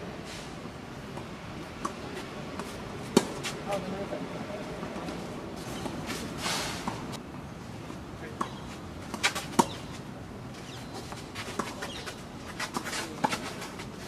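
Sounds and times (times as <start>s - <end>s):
tennis ball struck by rackets: 2.6s - 3.6s, 8.4s - 9.8s
tennis ball bouncing on court: 8.4s - 9.9s.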